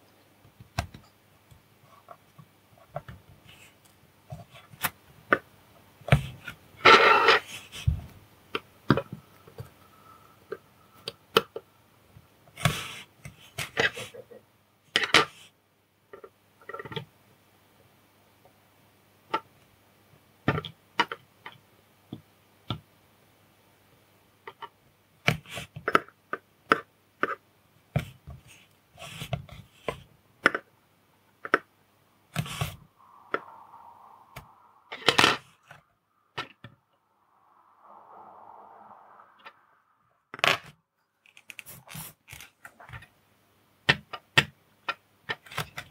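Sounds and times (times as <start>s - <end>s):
soft hiss: 0.0s - 15.7s, 27.6s - 43.9s.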